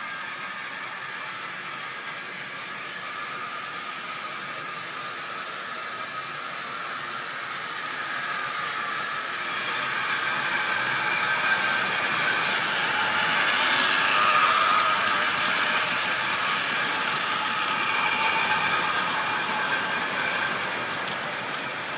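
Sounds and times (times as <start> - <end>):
model train motor whirring: 0.0 - 21.9
wheels on rails: 0.0 - 21.9.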